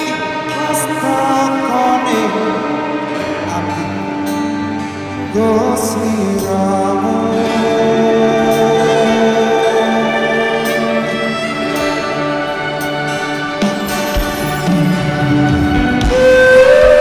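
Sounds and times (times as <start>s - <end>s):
man singing into a microphone: 0.0s - 12.3s
band accompaniment: 0.0s - 17.0s.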